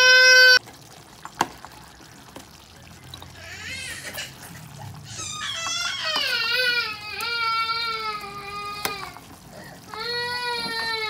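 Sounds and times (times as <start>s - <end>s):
baby crying: 0.0s - 0.6s, 3.2s - 11.0s
liquid pouring and splashing: 0.0s - 11.0s.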